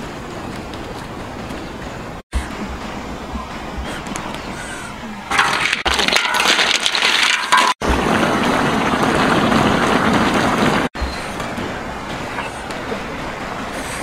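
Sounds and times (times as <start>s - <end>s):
wok boiling and hissing: 5.3s - 14.0s.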